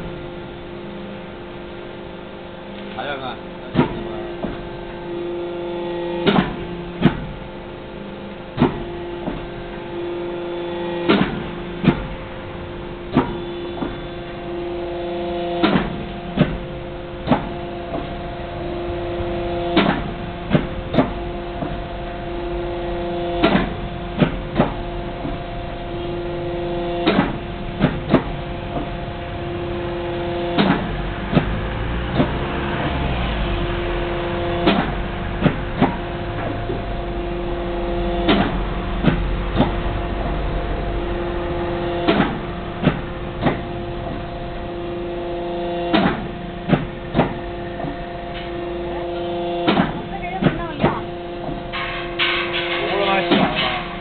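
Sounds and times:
machine mechanical hum: 0.0 - 54.0
sharp knocks: 6.2 - 7.3, 11.1 - 12.1, 13.1 - 14.0, 15.6 - 16.6, 17.2 - 18.2, 19.7 - 21.8, 23.4 - 25.4, 27.0 - 29.0, 30.5 - 32.4, 34.6 - 36.9, 38.2 - 40.4, 41.8 - 44.3, 45.9 - 48.6, 49.6 - 54.0.

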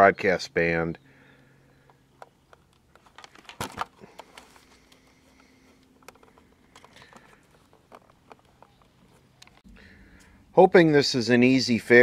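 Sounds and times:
radio handling clicks and taps: 1.6 - 9.7.

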